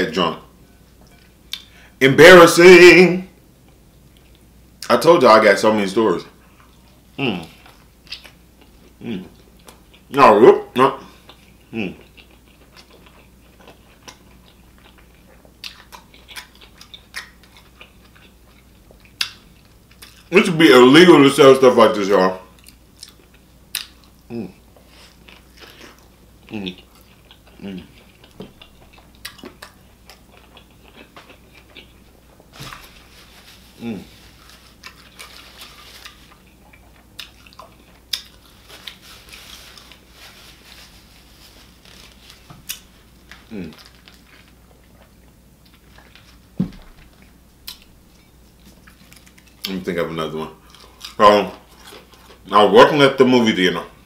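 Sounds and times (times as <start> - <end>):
mouth chewing food: 11.1 - 20.3, 22.5 - 32.8, 33.8 - 39.0
paper napkin rustling: 32.4 - 36.4, 38.4 - 44.6.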